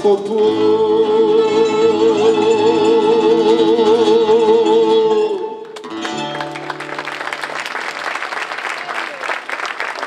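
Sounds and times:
audience applauding: 5.7s - 10.0s.

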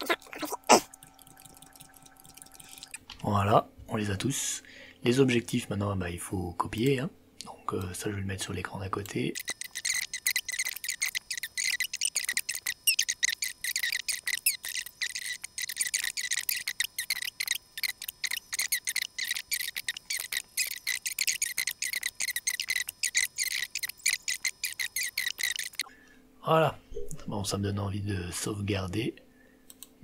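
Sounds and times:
computer keyboard typing: 0.8s - 3.0s, 9.0s - 25.8s.

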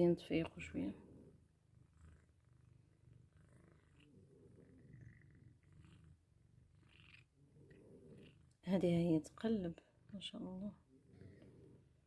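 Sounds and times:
cat purring: 0.0s - 12.0s.

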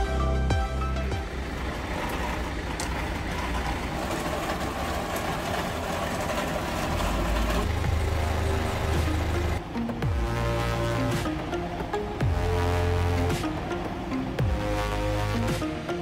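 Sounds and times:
background music: 0.0s - 1.8s, 7.6s - 16.0s
vehicle engine running: 0.0s - 16.0s.

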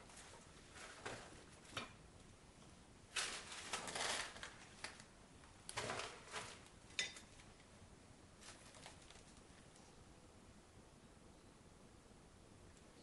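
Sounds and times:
rustling of packages: 3.1s - 7.6s, 8.4s - 9.8s.

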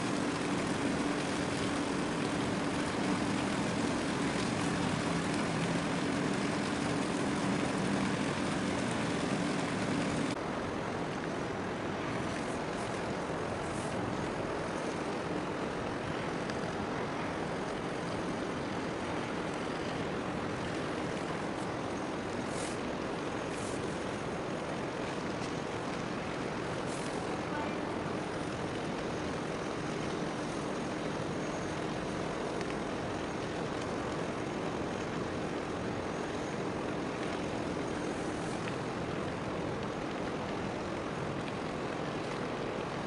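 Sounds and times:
boat engine droning: 0.0s - 43.0s.

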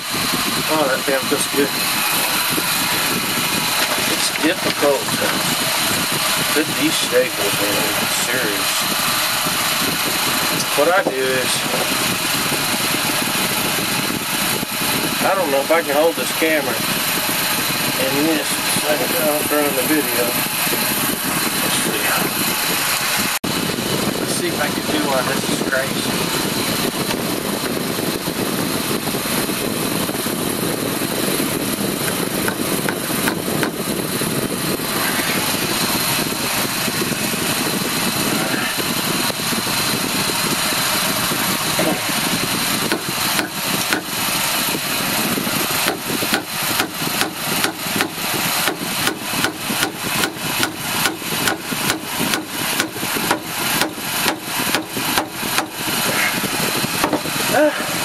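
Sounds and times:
fan whirring: 0.0s - 58.0s
staple tapped into wood: 42.9s - 44.1s, 45.9s - 55.7s.

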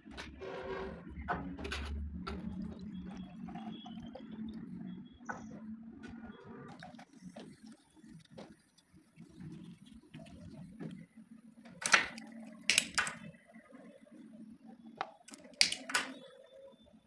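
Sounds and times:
sharp clicks and taps: 11.8s - 13.2s, 15.0s - 16.1s.

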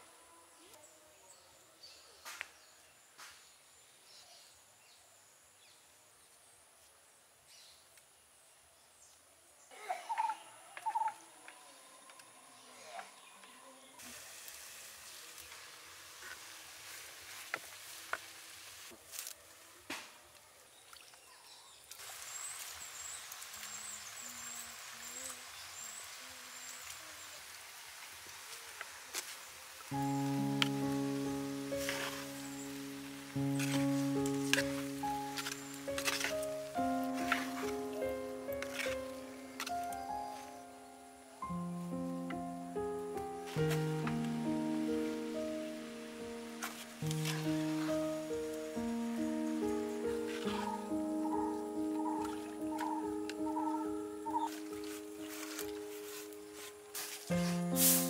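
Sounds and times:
food sizzling in a pot: 14.0s - 19.0s, 22.0s - 39.4s, 57.0s - 58.0s
high insect hum: 29.8s - 58.0s
bird hooting: 50.3s - 54.6s.

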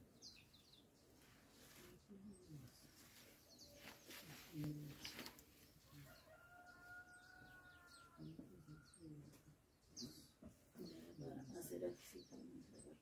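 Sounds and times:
rooster crowing: 6.0s - 8.2s.

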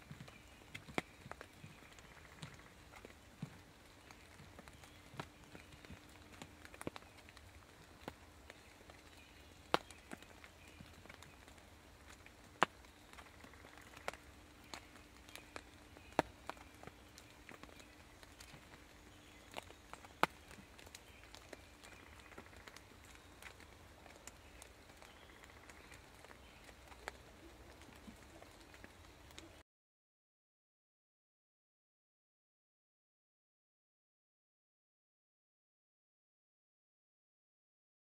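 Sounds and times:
ticks and rustles in dry leaves: 0.0s - 29.6s.

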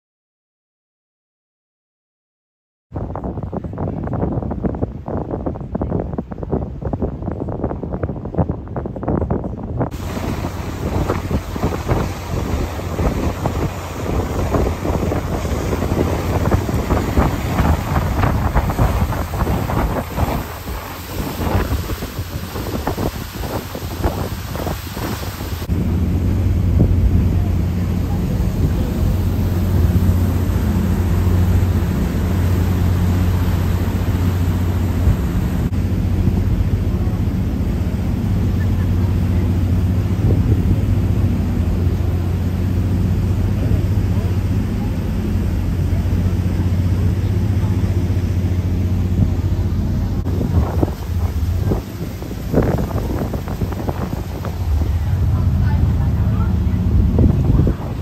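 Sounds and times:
boat low rumble: 2.9s - 58.0s
wind buffeting microphone: 2.9s - 58.0s
ship engine drone: 8.6s - 58.0s
rushing hiss: 9.9s - 25.7s.

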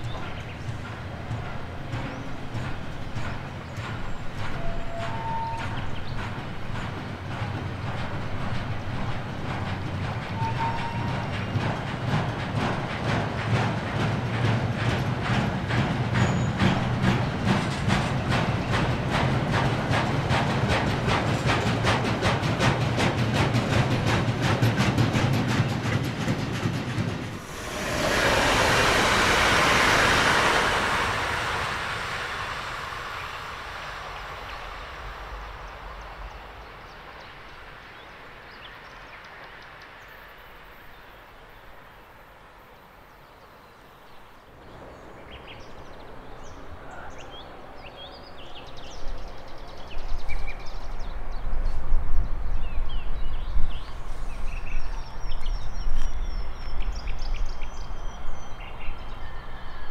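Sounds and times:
train passing rumble: 0.0s - 59.9s
low rumble: 27.2s - 37.1s.

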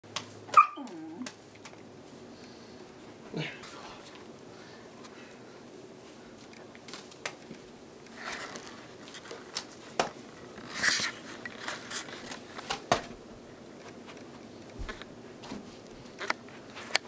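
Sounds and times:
juggling balls slapping into hands: 0.1s - 1.8s, 6.8s - 7.5s.

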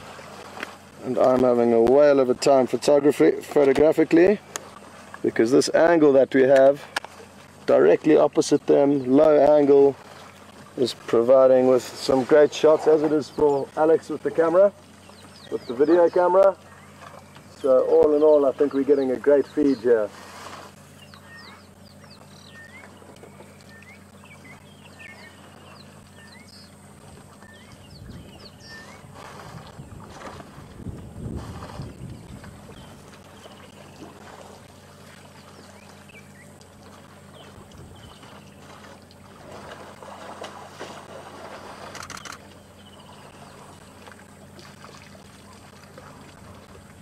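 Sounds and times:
birds chirping: 0.0s - 47.0s
steady low hum: 0.0s - 47.0s
water sloshing and splashing: 0.0s - 47.0s
camera shutter clicks: 41.9s - 42.4s.

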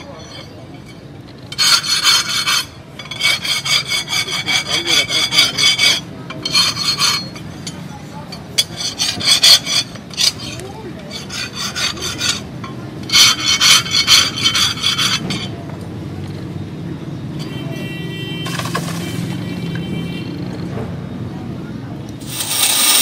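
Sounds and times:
hand file rasping on steel: 1.6s - 7.3s, 8.6s - 12.5s, 13.1s - 15.3s.

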